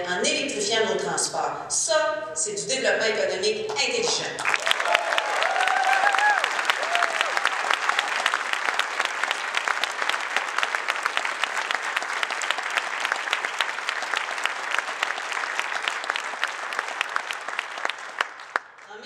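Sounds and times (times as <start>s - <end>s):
large audience clapping: 4.1s - 19.0s.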